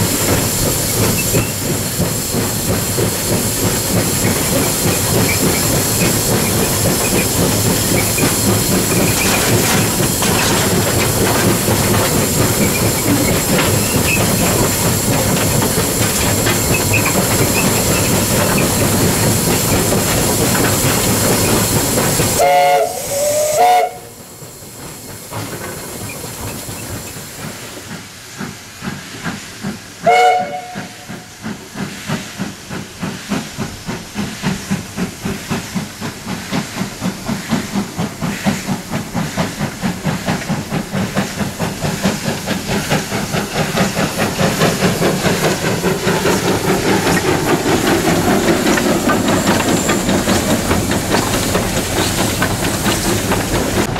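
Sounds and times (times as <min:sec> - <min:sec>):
steam hissing: 0:00.0 - 0:53.9
steam locomotive exhaust chuffs: 0:00.0 - 0:53.9
steam whistle toots: 0:22.4 - 0:24.2, 0:30.0 - 0:31.2.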